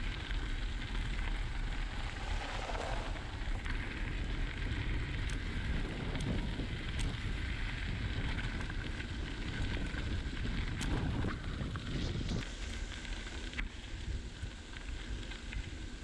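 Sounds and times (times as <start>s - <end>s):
wind buffeting microphone: 0.0s - 12.6s
bicycle tyres on gravel: 0.0s - 16.0s.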